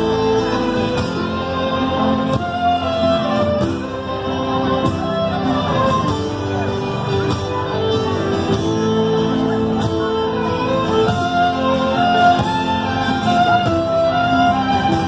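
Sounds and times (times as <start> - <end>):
fiddle melody: 0.0 - 15.0
live folk band playing: 0.0 - 15.0.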